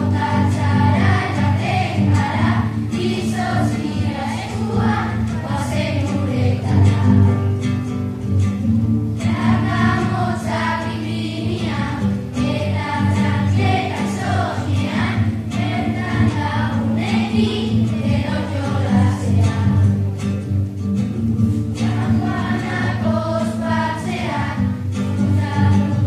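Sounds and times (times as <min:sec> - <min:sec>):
children's choir singing: 0:00.0 - 0:07.8, 0:09.2 - 0:20.2, 0:21.7 - 0:26.0
acoustic guitar: 0:00.0 - 0:26.0.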